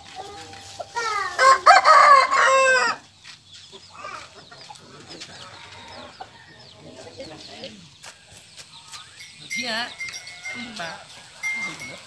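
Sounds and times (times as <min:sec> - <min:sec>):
rooster crowing: 0:01.0 - 0:03.0.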